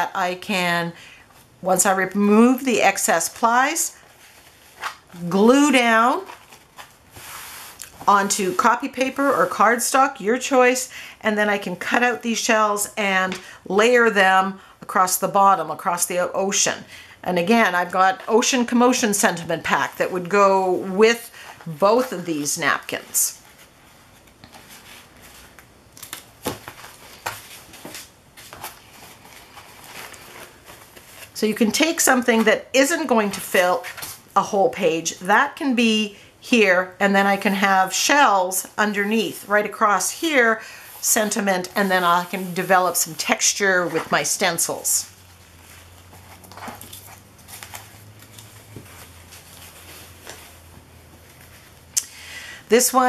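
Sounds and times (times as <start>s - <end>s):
paper napkins rustling: 1.8s - 10.8s, 17.6s - 34.4s, 37.1s - 52.0s
soft brushes and taps: 45.1s - 51.9s.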